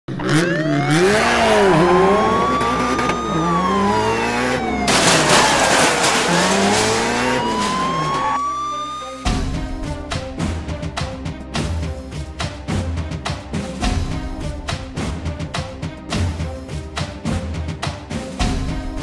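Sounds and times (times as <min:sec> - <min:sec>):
car driving fast: 0:00.1 - 0:08.7
police siren wailing: 0:00.2 - 0:09.4.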